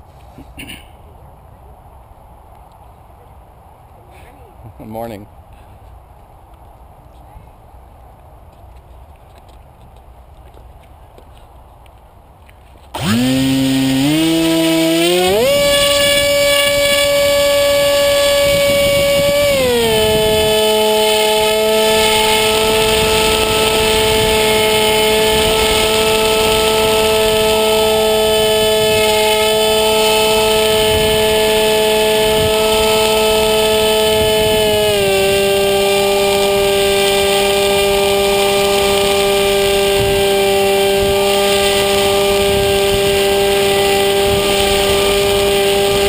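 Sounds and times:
electric motor propeller whine: 12.9s - 46.0s.

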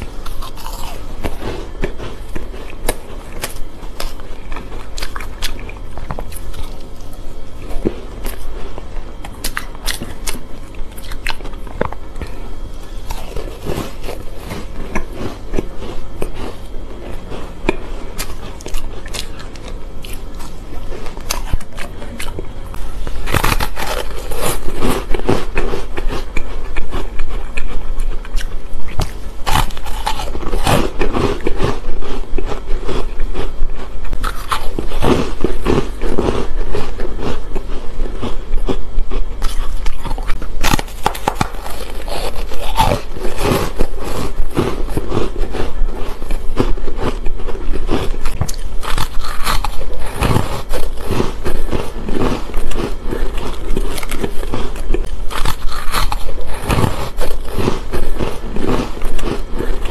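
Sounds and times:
crunching and chewing shaved ice: 0.0s - 59.9s.

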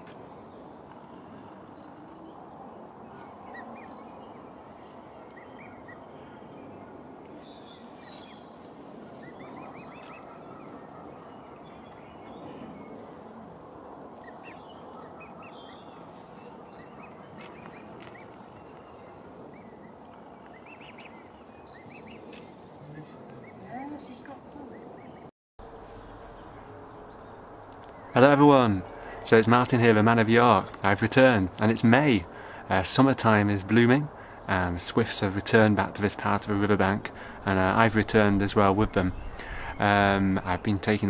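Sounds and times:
bird chirps and calls: 7.4s - 12.6s.

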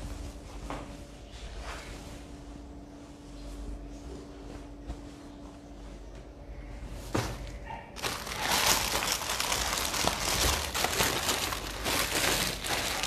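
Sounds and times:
packaging crinkling and rustling: 8.0s - 13.0s.

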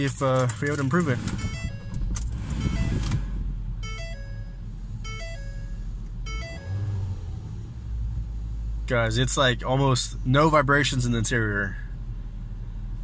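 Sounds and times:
car engine starting and idling: 0.0s - 13.0s
electronic tones: 1.2s - 6.9s.

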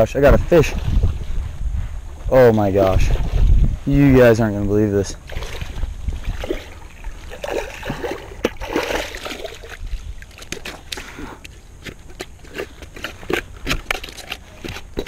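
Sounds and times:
fish splashing in shallow water: 5.2s - 15.0s.

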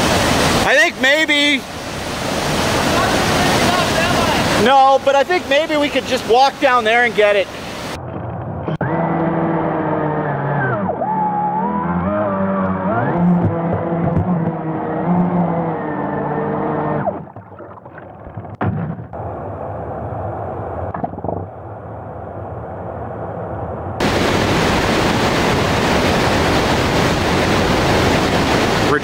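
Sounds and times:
rushing river water and wind: 0.0s - 10.0s, 24.0s - 29.0s.

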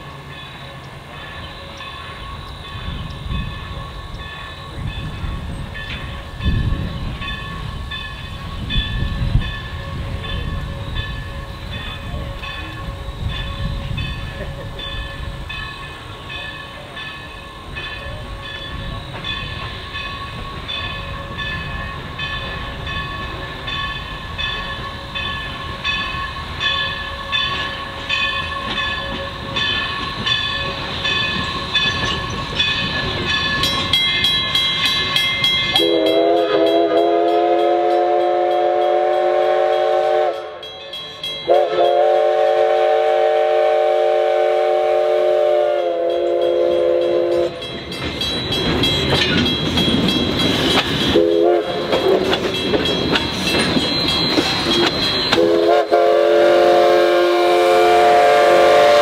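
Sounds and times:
locomotive bell ringing: 0.0s - 43.1s, 44.9s - 59.0s
locomotive engine rumble: 0.0s - 59.0s
steam whistle blasts: 35.7s - 40.7s, 41.5s - 47.7s, 51.1s - 52.2s, 55.3s - 59.0s.

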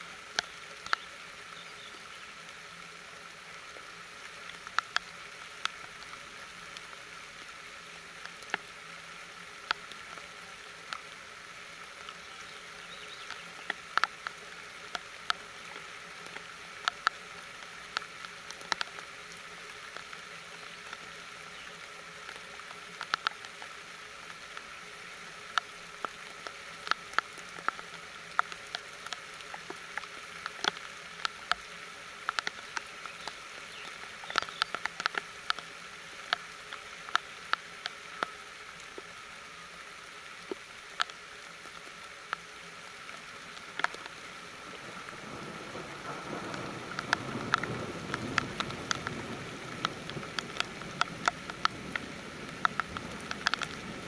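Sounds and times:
steady rain hiss: 0.0s - 54.0s
drops ticking on surfaces: 46.4s - 53.8s.

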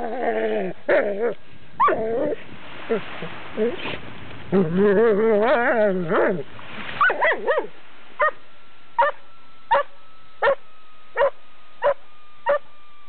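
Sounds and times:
dog barking: 7.0s - 8.4s, 9.0s - 10.6s, 11.2s - 12.6s.

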